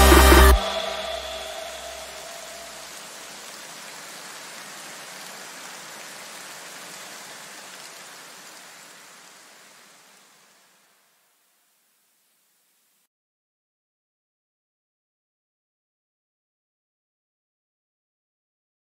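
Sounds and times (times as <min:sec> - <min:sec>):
rain-like hiss: 0:00.0 - 0:13.1.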